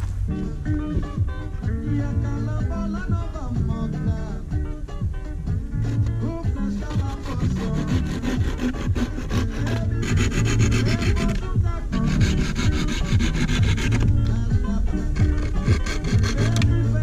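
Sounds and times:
background music: 0.0 - 17.0
knife scraping wooden stick: 5.8 - 14.2, 15.0 - 16.8.

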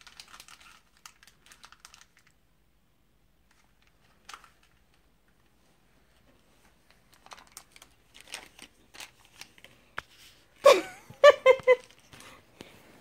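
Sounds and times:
packaging rustling: 0.0 - 2.4, 3.5 - 5.1, 6.6 - 10.4.

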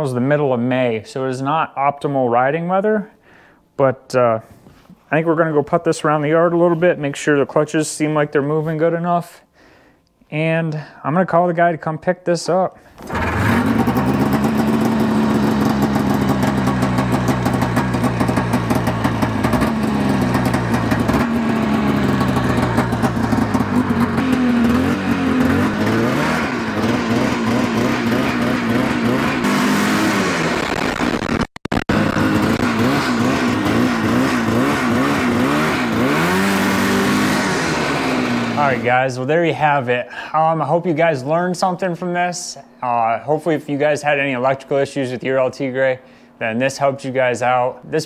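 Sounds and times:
snowmobile engine idling and revving: 13.0 - 38.9.

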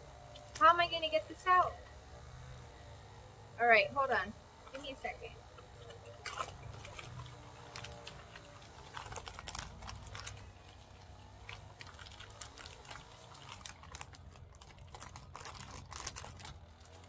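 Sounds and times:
plastic packaging crinkling: 5.8 - 17.0.

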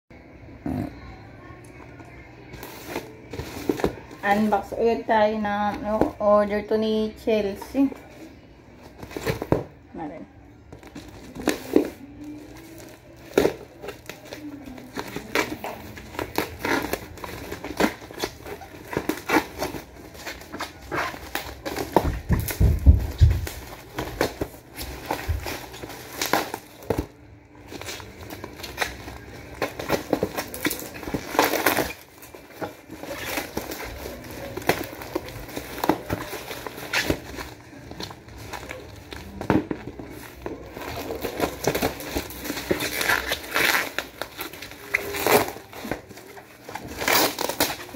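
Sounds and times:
plastic packaging crinkling: 10.7 - 47.9.

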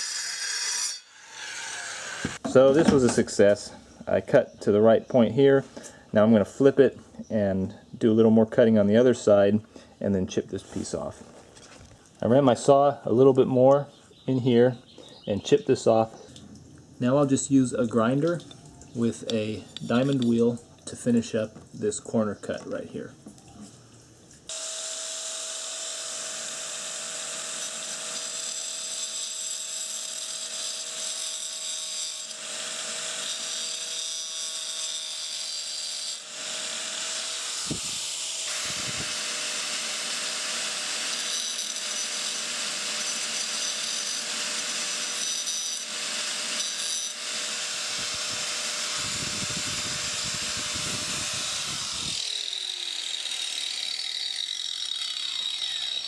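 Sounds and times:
angle grinder cutting stone: 0.0 - 3.1, 24.5 - 56.0
grinder winding down: 36.6 - 56.0.

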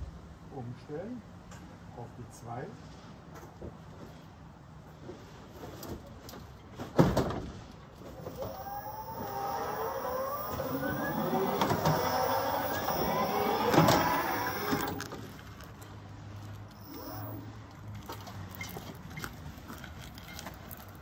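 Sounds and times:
hand truck motor whining: 8.1 - 15.4, 16.7 - 18.8.

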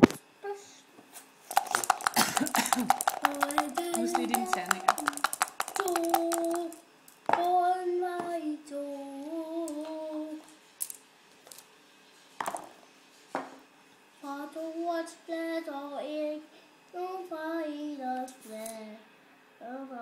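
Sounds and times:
dice knocking in a leather cup: 1.5 - 7.5, 12.4 - 12.7
child singing wordless tune: 5.8 - 10.5, 14.2 - 20.0.

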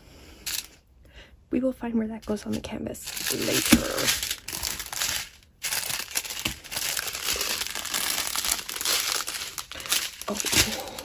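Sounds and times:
plastic bags crinkling: 2.5 - 11.0.

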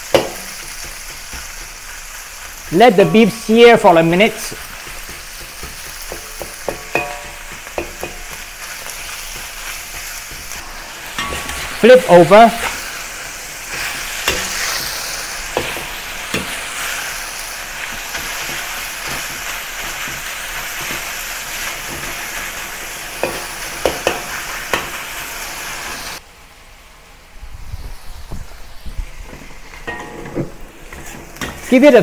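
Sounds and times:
beef sizzling in hot oil: 0.0 - 26.2, 27.5 - 32.0
metal spatula scraping a wok: 4.5 - 11.9, 12.5 - 17.2, 29.7 - 32.0.

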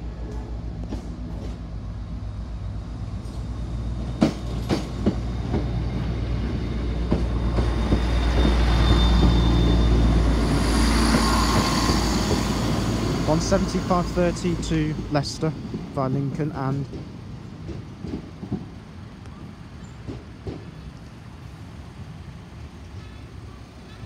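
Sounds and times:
diesel train engines: 0.0 - 24.0
train wheels clacking over rail joints: 4.2 - 5.8, 13.4 - 18.9, 20.0 - 20.9.

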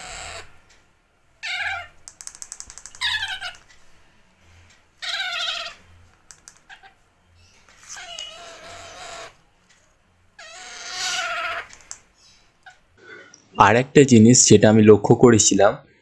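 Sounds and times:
parakeet chick begging calls: 1.4 - 2.0, 2.6 - 3.6, 5.0 - 7.0, 7.8 - 9.4, 10.4 - 12.8.

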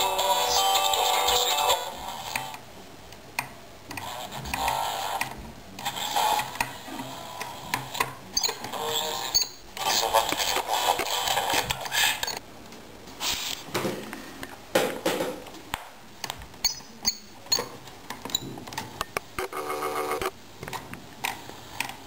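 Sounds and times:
radio static hiss: 4.0 - 12.4
snatches of radio stations: 5.8 - 8.0, 8.6 - 12.4.

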